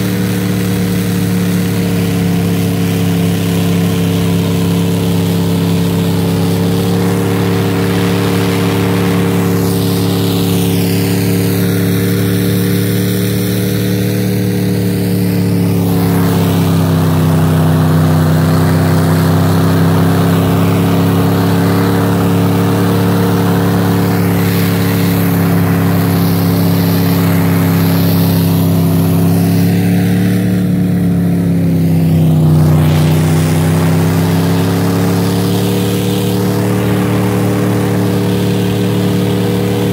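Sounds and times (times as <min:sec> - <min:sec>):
snowcat engine running: 0:00.0 - 0:39.9.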